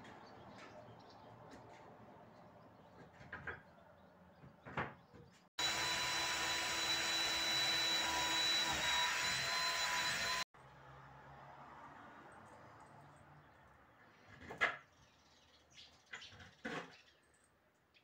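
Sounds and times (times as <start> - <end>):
cordless drill boring into wood: 5.6 - 10.5.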